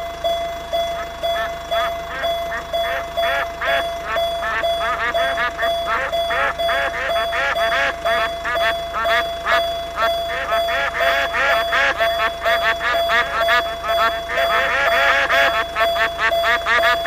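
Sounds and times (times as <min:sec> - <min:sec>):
pulsing electronic tone: 0:00.0 - 0:17.0
ducks quacking: 0:00.8 - 0:17.0.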